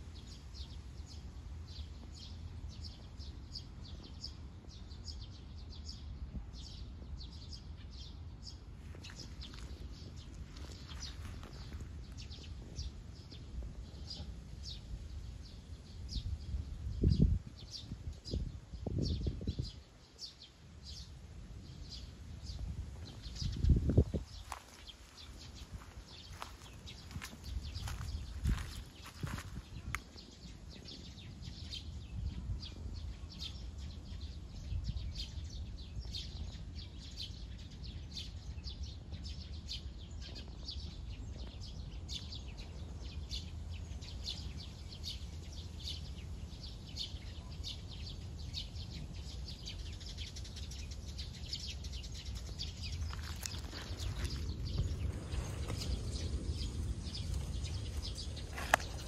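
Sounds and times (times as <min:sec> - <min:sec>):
low outdoor rumble: 0:00.0 - 0:59.0
small birds chirping: 0:00.0 - 0:59.0.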